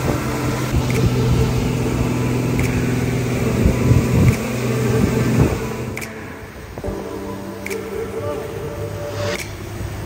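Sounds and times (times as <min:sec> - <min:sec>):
outboard motor humming: 0:00.0 - 0:06.0
wind buffeting microphone: 0:00.0 - 0:07.0
boat wake rushing: 0:00.0 - 0:10.0.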